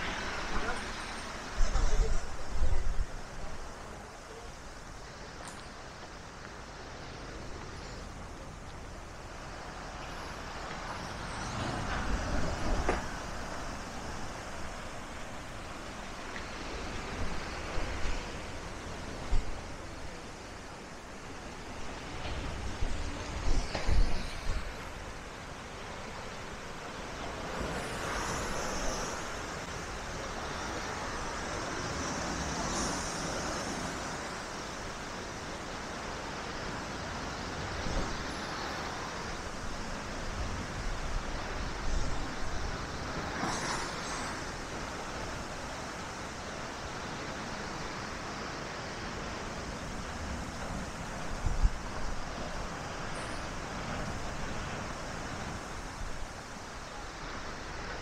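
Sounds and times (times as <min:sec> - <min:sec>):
waves washing onto shore: 0:00.0 - 0:58.0
wind buffeting microphone: 0:01.4 - 0:03.7.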